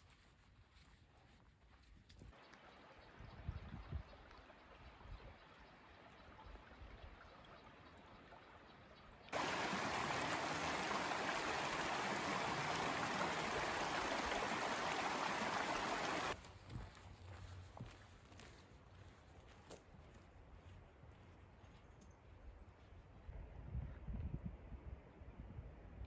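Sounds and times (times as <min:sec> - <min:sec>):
faint hiss: 0:09.4 - 0:16.4
water rushing over rocks: 0:09.4 - 0:16.4.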